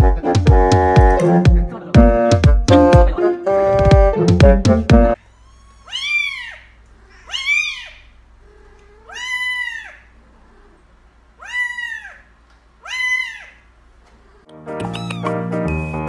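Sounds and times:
kitten meowing: 5.2s - 10.8s, 11.4s - 13.6s, 14.3s - 15.8s.

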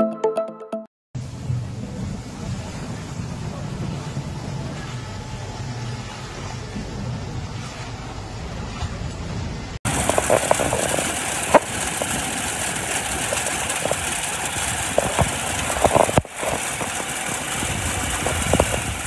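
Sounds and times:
hail hissing: 9.9s - 19.0s
hailstones knocking: 9.9s - 19.0s.

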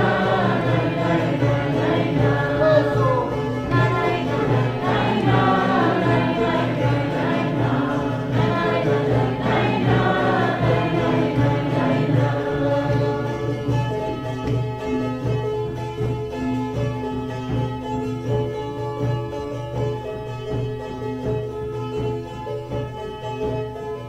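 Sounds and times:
voices singing together: 0.0s - 14.2s.

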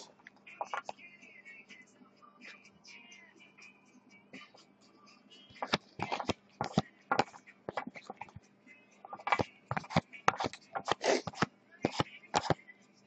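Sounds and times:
cards flicking against cards: 5.6s - 8.4s, 9.1s - 12.6s.

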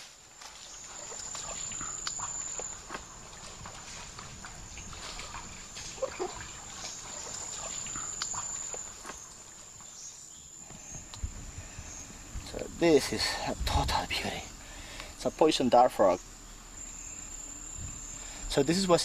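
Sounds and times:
insect chorus buzzing: 0.0s - 19.0s
rustles and clicks in undergrowth: 0.0s - 19.0s.

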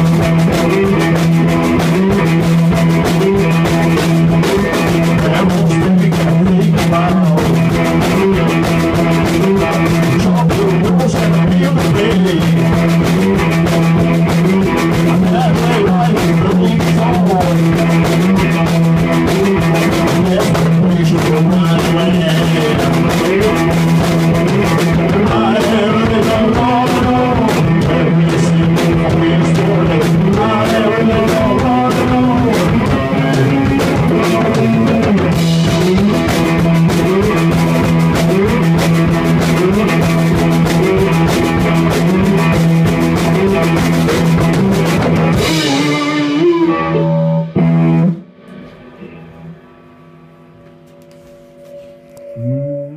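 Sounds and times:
percussive beat: 0.0s - 46.6s
cigar box guitar: 0.0s - 52.9s
low drone note: 45.9s - 52.9s.

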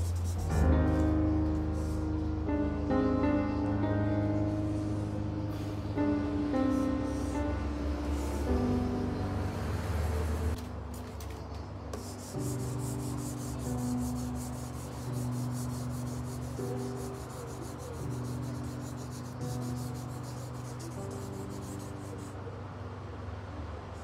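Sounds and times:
scratchy scribbling on paper: 0.0s - 2.1s, 12.0s - 22.4s
soft background music: 0.0s - 24.0s.

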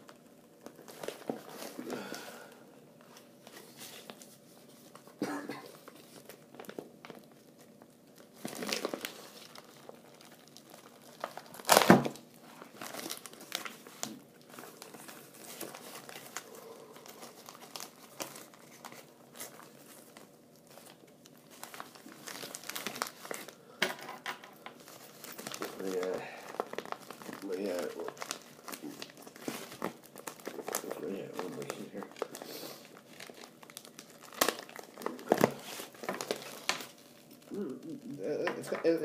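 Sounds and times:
plastic mailer crinkling: 0.0s - 39.0s.

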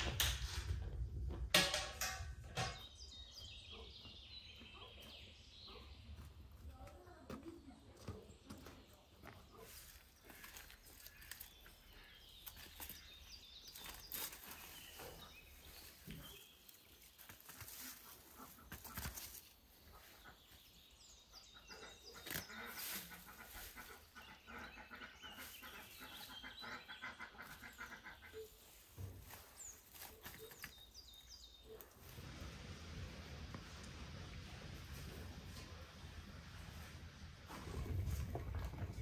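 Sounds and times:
small birds chirping: 2.4s - 32.1s.

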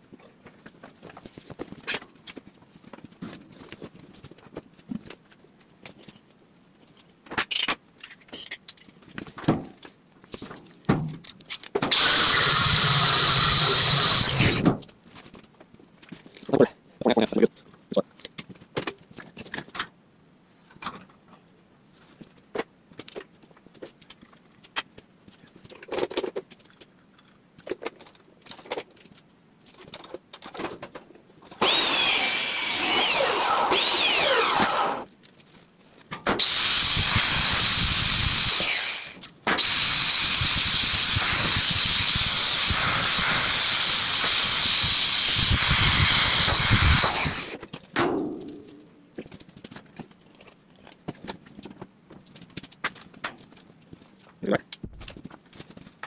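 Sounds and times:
angle grinder on steel: 11.9s - 14.6s, 31.6s - 35.1s, 36.4s - 47.6s.

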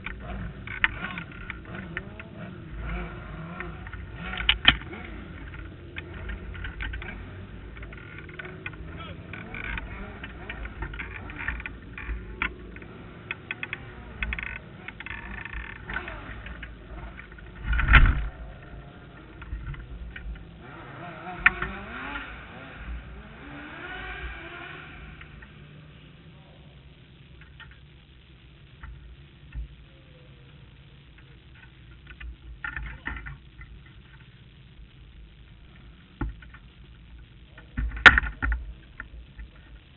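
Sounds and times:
jumble of voices: 0.0s - 20.7s
arena noise: 0.0s - 39.9s
knocks and clicks: 3.6s - 20.4s.

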